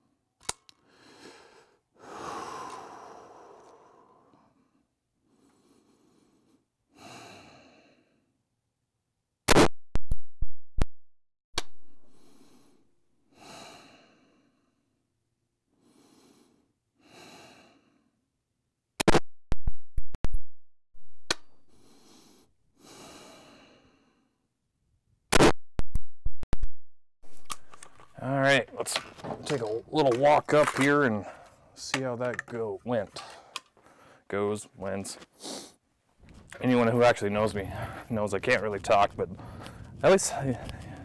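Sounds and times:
person breathing: 0.8s - 8.3s, 12.0s - 14.9s, 15.8s - 18.2s, 21.6s - 24.4s, 31.2s - 31.8s, 33.1s - 34.3s, 35.3s - 35.8s, 37.6s - 38.1s, 39.3s - 41.0s.

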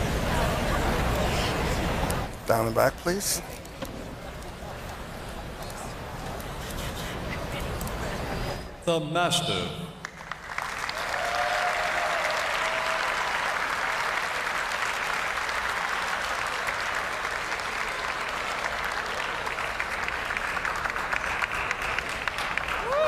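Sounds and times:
audience applauding: 10.0s - 23.0s.

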